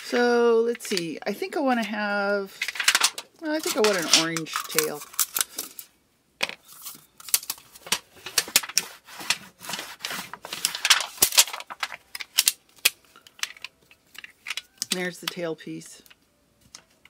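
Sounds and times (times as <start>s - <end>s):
aluminum sheet crinkling: 2.5s - 5.9s, 6.6s - 15.1s.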